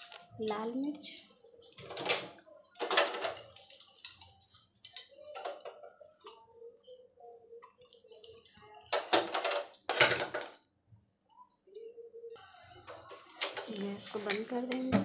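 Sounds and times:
hot oil crackling and sizzling: 0:03.4 - 0:05.0.

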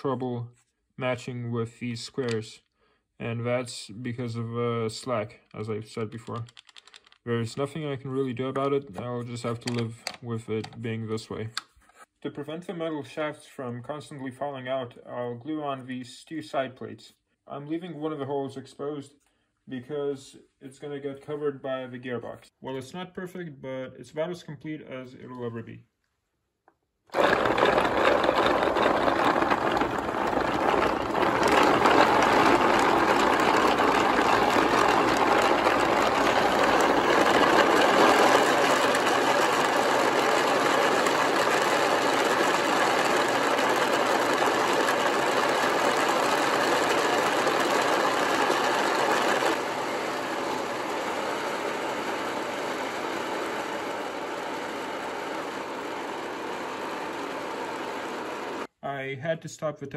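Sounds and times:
toy car motor whirring rattle: 0:06.1 - 0:07.2, 0:27.1 - 0:58.7.

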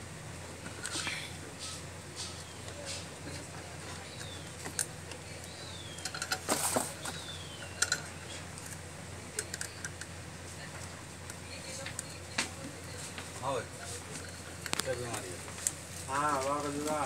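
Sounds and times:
wire connectors clicking and rustling: 0:03.3 - 0:10.2.

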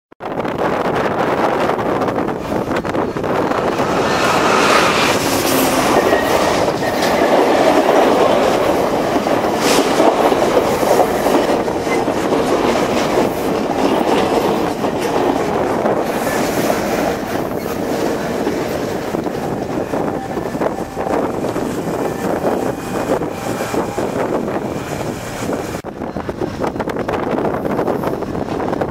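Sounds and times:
train cars rumbling past: 0:00.5 - 0:28.9
diesel locomotive passing: 0:00.6 - 0:28.8
wheels clicking over rail joints: 0:02.8 - 0:24.0.

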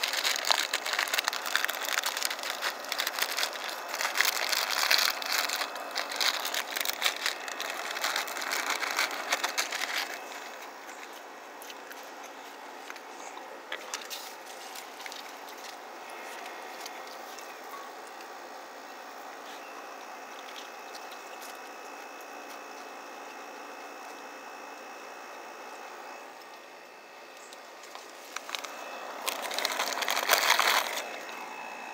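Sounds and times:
movement on plastic tarp: 0:00.0 - 0:12.6, 0:27.8 - 0:31.4
animals crunching crackers: 0:00.0 - 0:31.9.

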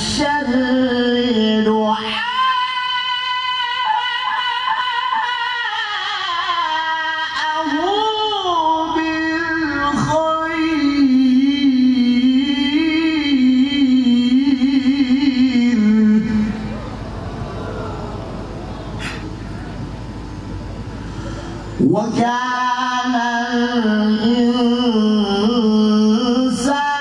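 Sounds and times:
man chanting melodically: 0:21.6 - 0:27.0.

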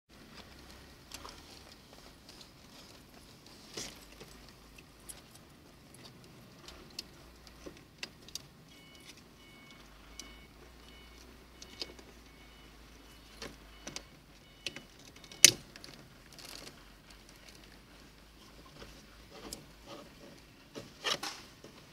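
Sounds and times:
faint repeated beeping: 0:08.6 - 0:15.7.

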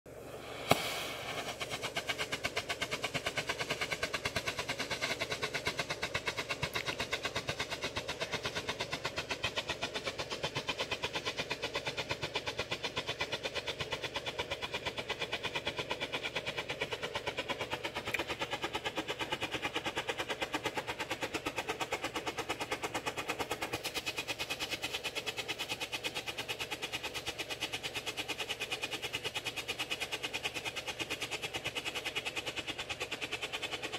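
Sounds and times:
strobe flare popping: 0:00.1 - 0:02.2
flare burning hiss: 0:00.1 - 0:02.8.

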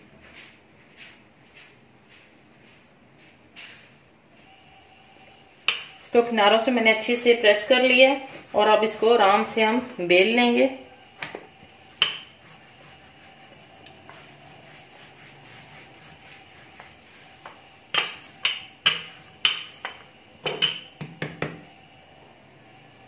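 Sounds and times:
rolling pin knocking on stone: 0:12.0 - 0:12.3, 0:17.9 - 0:21.6.

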